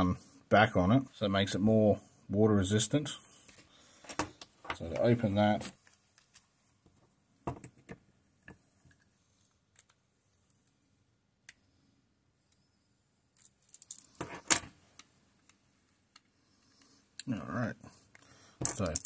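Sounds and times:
metallic clinking and clatter: 13.4s - 14.6s.

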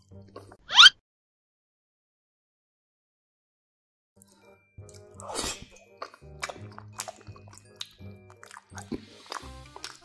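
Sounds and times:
background music: 4.2s - 10.0s
wet chewing: 4.8s - 10.0s.

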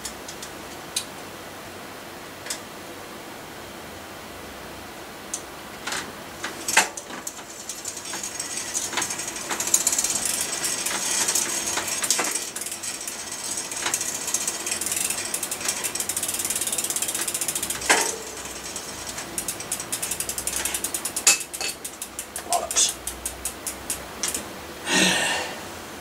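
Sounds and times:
bicycle freewheel ticking: 5.3s - 24.4s.

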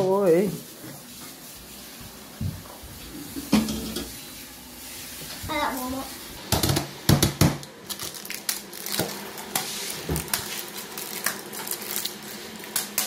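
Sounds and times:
wrapper crinkling: 7.8s - 13.0s.

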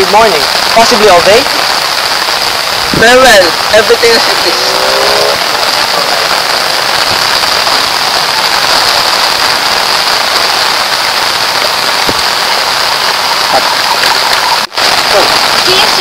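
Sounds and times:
loud outdoor hiss: 0.0s - 16.0s.

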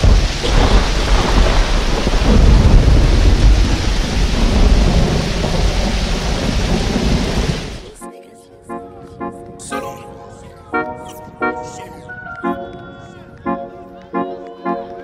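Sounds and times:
heavy rain: 0.0s - 8.0s
thunder rumbling: 0.0s - 8.0s.

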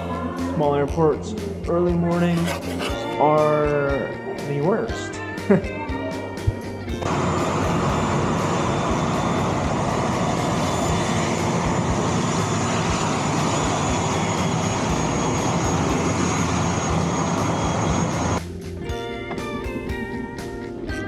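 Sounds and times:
turboprop engines roaring: 7.0s - 18.4s
high turbine whine: 7.1s - 18.4s.

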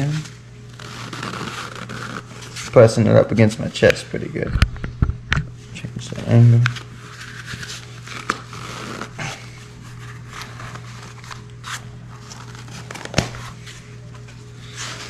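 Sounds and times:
fabric cover rubbing and rustling: 0.0s - 3.1s, 6.2s - 15.0s
steady low hum: 0.0s - 15.0s.

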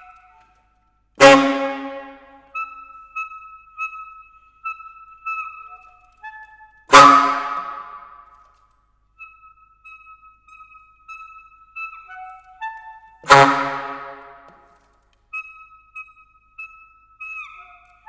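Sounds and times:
saxophone high notes: 1.2s - 2.6s, 6.9s - 8.2s, 13.2s - 14.6s.

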